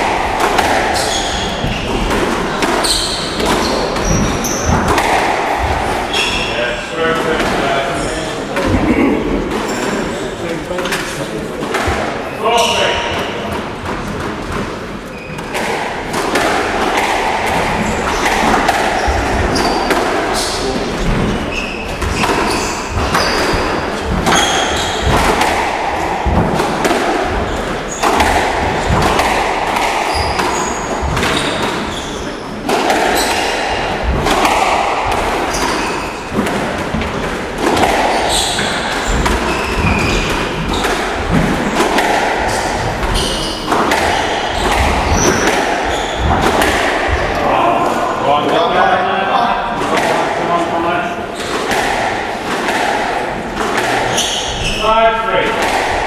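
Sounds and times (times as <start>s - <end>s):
squash ball hits: 0.0s - 7.9s, 13.0s - 48.8s, 49.7s - 56.0s
shoe squeaks: 1.0s - 2.0s, 2.8s - 4.8s, 6.1s - 6.7s, 12.5s - 13.1s, 15.1s - 15.6s, 17.8s - 25.1s, 30.1s - 32.6s, 35.5s - 36.3s, 38.1s - 40.9s, 42.5s - 46.4s, 54.1s - 54.9s.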